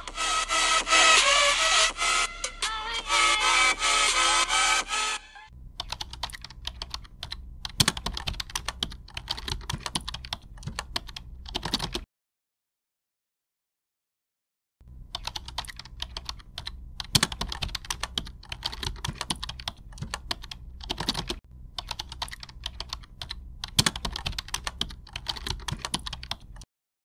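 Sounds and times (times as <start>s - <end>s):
keyboard typing clicks: 5.8s - 12.1s, 15.1s - 26.7s.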